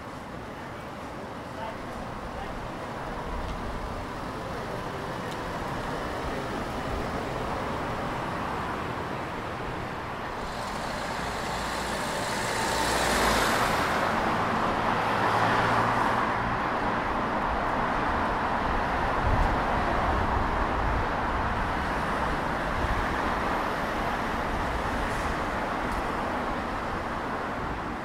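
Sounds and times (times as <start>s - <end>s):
cars passing on street: 0.0s - 28.0s
vehicle passing close: 10.4s - 16.3s.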